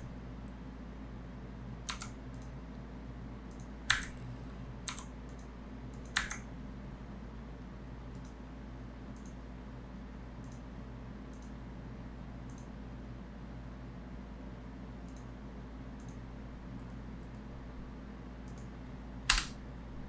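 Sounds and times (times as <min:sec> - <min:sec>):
steady low hum: 0:00.0 - 0:20.0
computer input clicks: 0:01.9 - 0:02.5, 0:03.5 - 0:06.5, 0:19.3 - 0:19.6.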